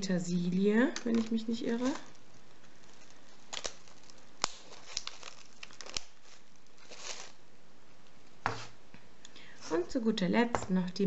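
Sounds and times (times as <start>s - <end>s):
plastic film crinkling: 0.7s - 7.5s.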